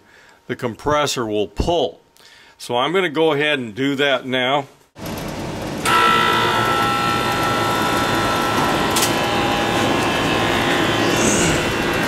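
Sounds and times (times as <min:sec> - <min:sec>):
air conditioner compressor humming: 0:05.0 - 0:12.0.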